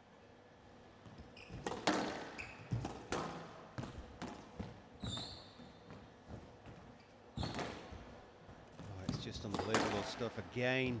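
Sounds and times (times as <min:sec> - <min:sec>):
shoes squeaking on court: 0:01.0 - 0:10.1
squash ball knocks: 0:01.6 - 0:04.8, 0:09.0 - 0:10.2.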